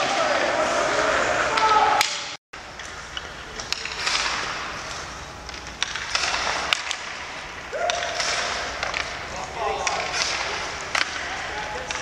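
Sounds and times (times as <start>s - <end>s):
pucks hitting boards: 0.0s - 12.0s
sticks striking pucks: 0.0s - 12.0s
skates scraping on ice: 3.6s - 12.0s.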